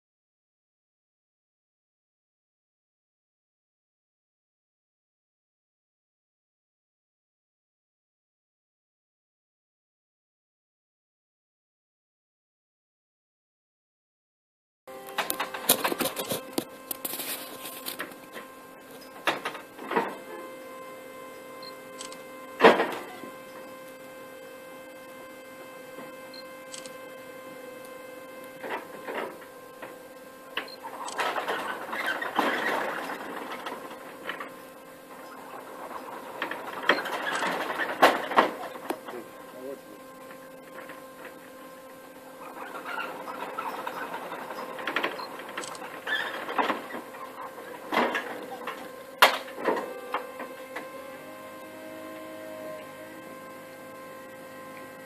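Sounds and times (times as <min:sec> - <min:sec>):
electric platform humming: 0:14.9 - 0:55.0.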